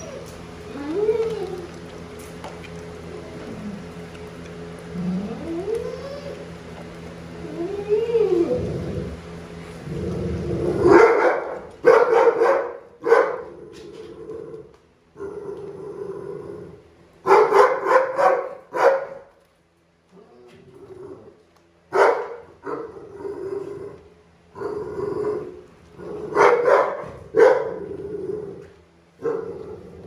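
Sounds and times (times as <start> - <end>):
dogs crying: 0.0 - 1.9, 4.9 - 6.6, 7.4 - 9.2
dogs barking loudly: 10.8 - 13.5, 17.2 - 19.3, 21.9 - 23.0, 26.2 - 28.0.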